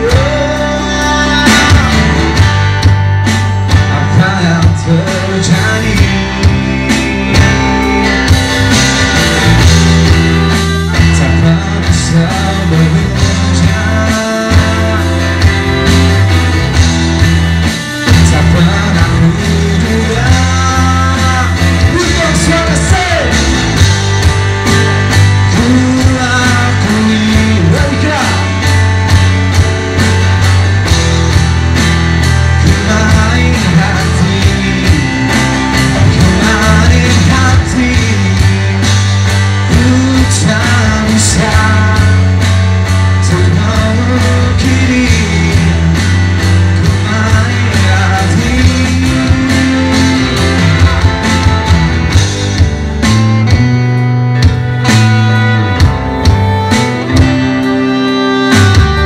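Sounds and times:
man singing: 0:00.0 - 0:02.6, 0:03.7 - 0:08.8, 0:10.1 - 0:16.1, 0:18.0 - 0:23.8, 0:25.4 - 0:28.9, 0:32.5 - 0:51.8
bass: 0:00.0 - 0:59.0
drums: 0:00.0 - 0:59.0
electric guitar: 0:00.0 - 0:59.0.

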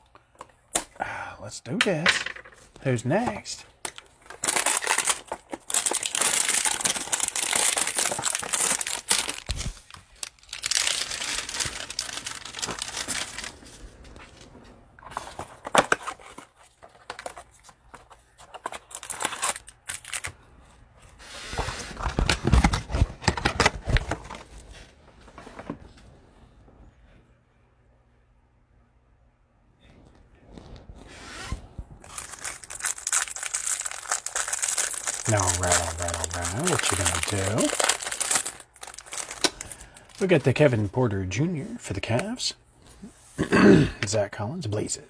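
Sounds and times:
packaging crinkling: 0:03.9 - 0:14.1, 0:15.2 - 0:20.3, 0:32.0 - 0:40.4
cardboard box being torn open: 0:32.1 - 0:39.4.

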